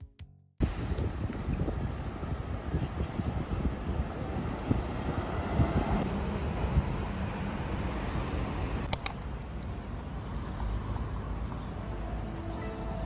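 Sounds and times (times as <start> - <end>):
road traffic noise: 0.6 - 13.0
sharp clicks: 8.8 - 9.3.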